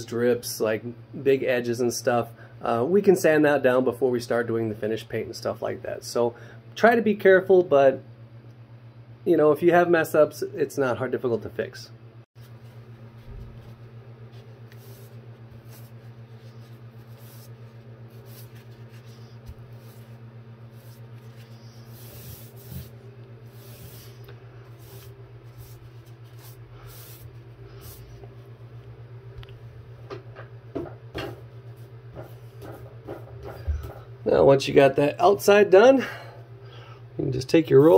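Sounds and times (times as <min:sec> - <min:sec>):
steady low hum: 0:00.0 - 0:37.9
paintbrush swishing on wood: 0:12.4 - 0:28.4.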